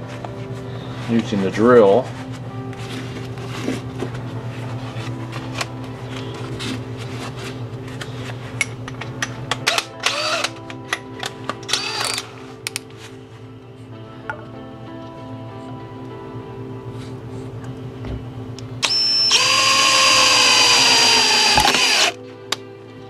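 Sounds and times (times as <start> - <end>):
power drill bursts: 18.8 - 22.2.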